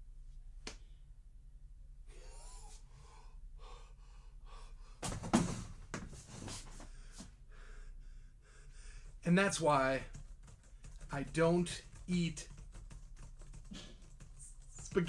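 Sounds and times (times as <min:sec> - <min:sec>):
man breathing: 0:02.1 - 0:05.1, 0:06.4 - 0:09.2
loud thump and knocks on desk: 0:05.0 - 0:06.1.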